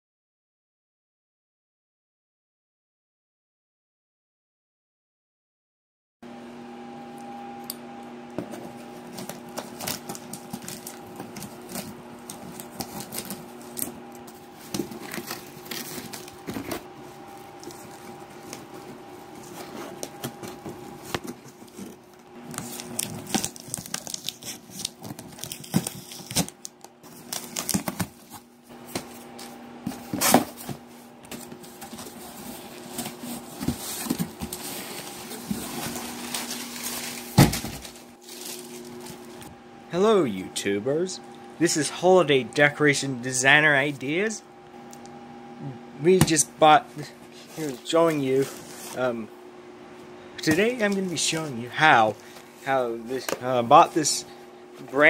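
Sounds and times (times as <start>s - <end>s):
cardboard and tape crinkling: 8.4s - 39.5s, 46.1s - 49.1s, 50.4s - 55.0s
scissors cutting packing tape: 22.5s - 28.2s.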